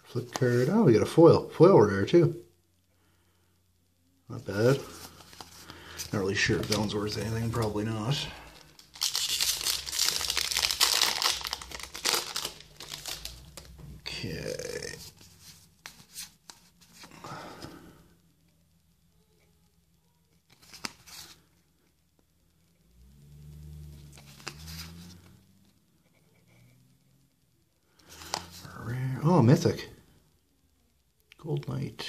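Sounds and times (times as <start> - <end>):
cards rustling: 4.4 - 17.8, 20.5 - 21.5, 24.0 - 25.8, 28.0 - 28.8
foil wrapper tearing and crinkling: 8.5 - 13.7.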